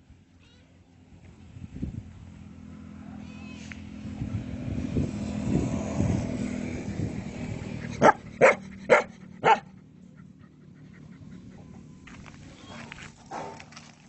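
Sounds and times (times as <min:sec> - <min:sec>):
dog barking: 0:08.0 - 0:09.7.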